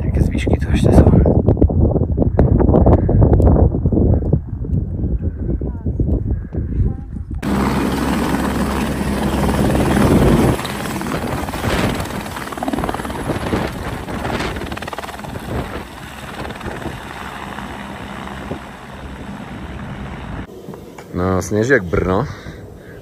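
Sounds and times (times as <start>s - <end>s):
helicopter rotor and engine: 7.3s - 21.1s.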